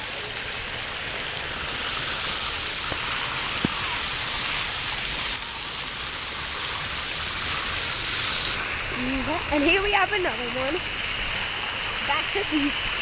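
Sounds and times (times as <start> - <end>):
water jet spraying: 0.0 - 13.0.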